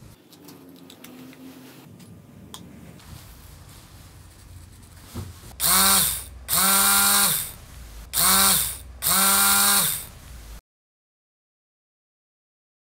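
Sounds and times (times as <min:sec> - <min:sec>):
starter motor whining: 0:05.6 - 0:10.2.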